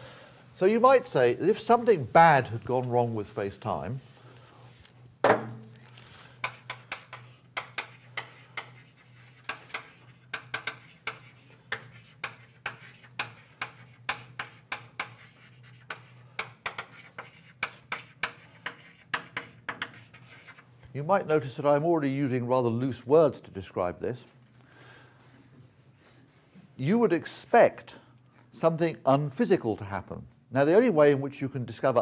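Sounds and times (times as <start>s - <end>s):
writing strokes on a board: 6.4s - 20.7s.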